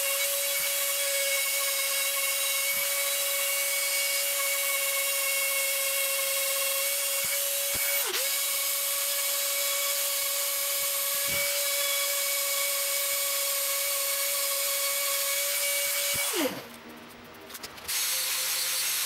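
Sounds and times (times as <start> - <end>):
rotary tool high-pitched whine: 0.0 - 16.9, 17.5 - 19.0.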